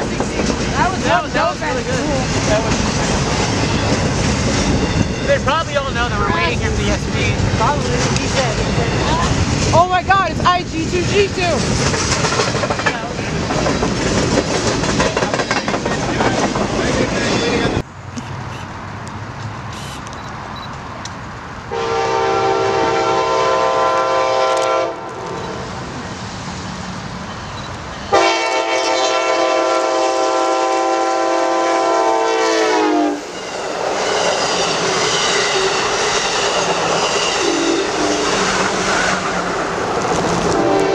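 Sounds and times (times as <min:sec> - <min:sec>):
train rushing past: 0:00.0 - 0:40.9
locomotive air horn chord: 0:21.7 - 0:25.6, 0:28.1 - 0:33.3, 0:40.5 - 0:40.9.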